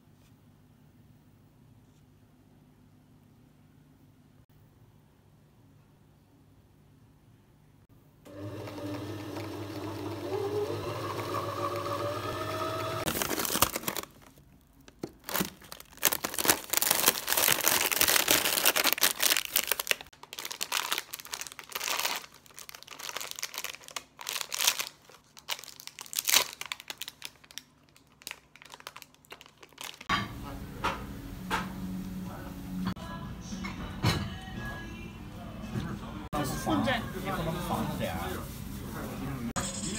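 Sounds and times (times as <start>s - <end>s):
plastic packaging crinkling: 13.0s - 30.1s.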